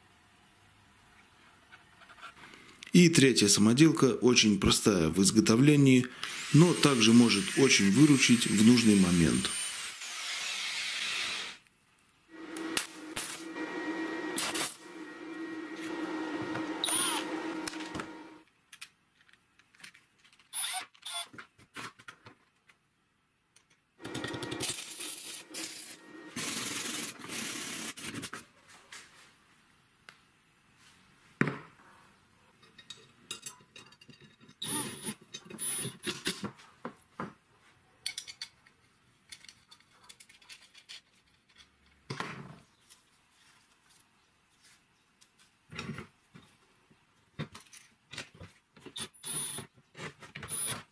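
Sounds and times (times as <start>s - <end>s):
loud noise: 12.3s - 18.4s
steady hum: 12.3s - 18.4s, 24.0s - 26.8s.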